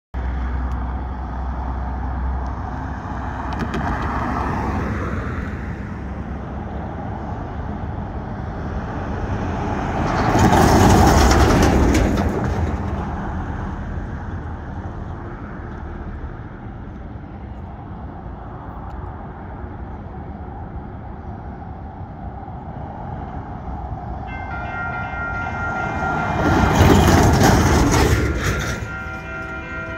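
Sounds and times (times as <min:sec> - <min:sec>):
car passing: 0:00.2 - 0:29.9
truck engine and tyres passing: 0:00.2 - 0:29.9
knocks and rattles over rails: 0:09.3 - 0:13.7, 0:26.3 - 0:29.2.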